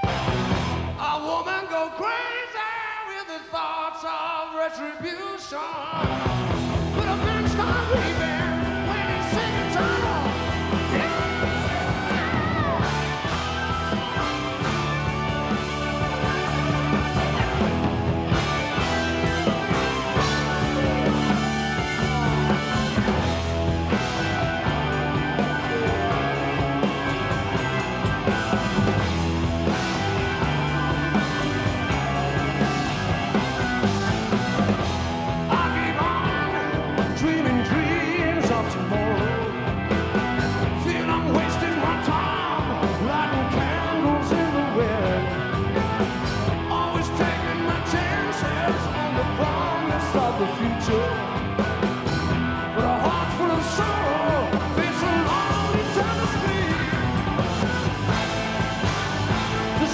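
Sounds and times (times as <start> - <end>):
electric guitar: 0.0 - 1.1, 5.8 - 59.9
bass guitar: 0.0 - 1.5, 5.8 - 59.9
drums: 0.0 - 59.9
man singing lead vocal: 1.0 - 12.9, 35.4 - 45.6, 46.2 - 51.6, 52.6 - 57.7, 59.6 - 59.9.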